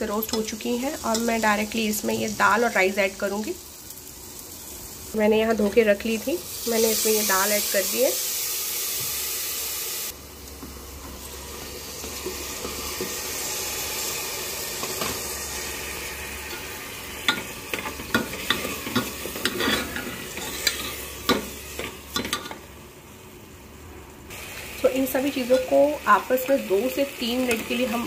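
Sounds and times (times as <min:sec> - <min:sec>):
food sizzling in a pot: 0:00.0 - 0:28.0
spoon scraping metal pot: 0:18.4 - 0:21.0.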